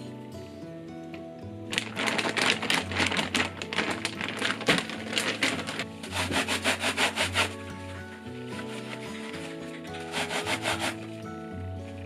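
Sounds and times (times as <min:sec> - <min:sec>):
soft background music: 0:00.0 - 0:12.0
plastic bag crinkling: 0:01.7 - 0:11.2
metal grater scrubbed in sink: 0:06.0 - 0:07.7, 0:08.5 - 0:11.2.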